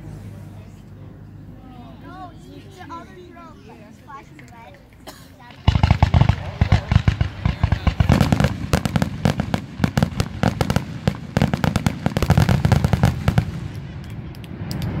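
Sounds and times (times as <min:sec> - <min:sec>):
firework shells bursting: 0:04.9 - 0:15.0.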